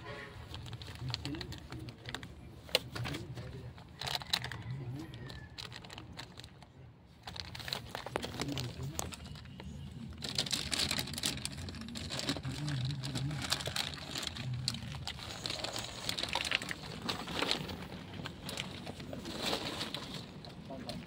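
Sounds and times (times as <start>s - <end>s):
plastic sheeting rustling: 7.2s - 21.0s.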